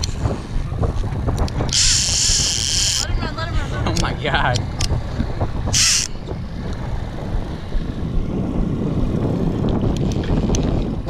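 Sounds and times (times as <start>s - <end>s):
boat motor running: 0.0s - 11.0s
wind buffeting microphone: 0.0s - 11.0s
fishing reel clicking: 1.4s - 3.2s, 5.8s - 6.2s.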